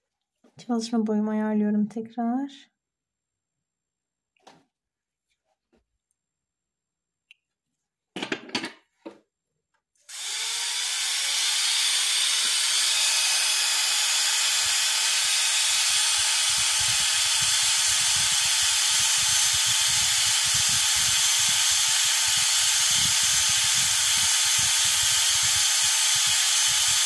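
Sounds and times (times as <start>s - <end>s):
dental drill hissing: 10.1s - 27.0s.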